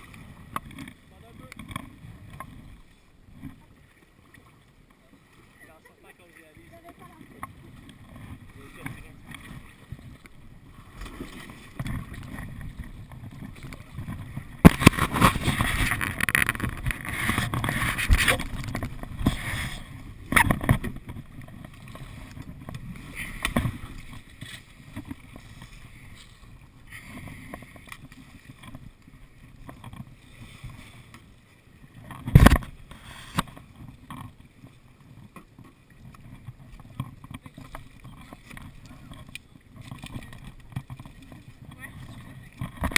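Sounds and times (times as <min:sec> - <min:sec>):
kayak hull scraping on stones: 0:00.0 - 0:04.2, 0:05.6 - 0:42.9
water sloshing: 0:00.0 - 0:42.9.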